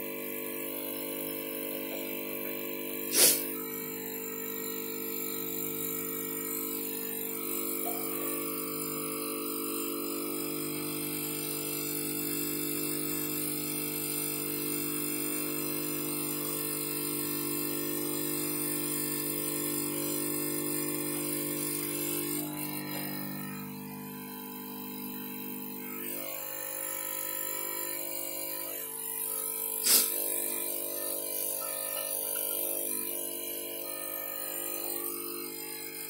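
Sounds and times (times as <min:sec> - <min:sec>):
droning hum of held tones: 0:03.6 - 0:29.6.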